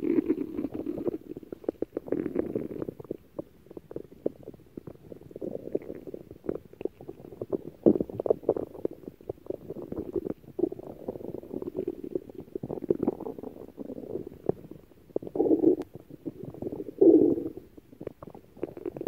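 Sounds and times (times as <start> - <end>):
stomach growling: 0.0 - 19.0.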